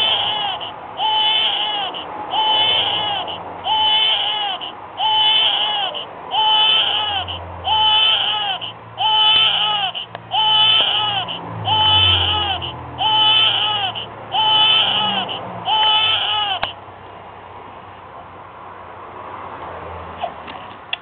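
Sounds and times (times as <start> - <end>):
electronic baby doll cry: 0.0 - 16.8.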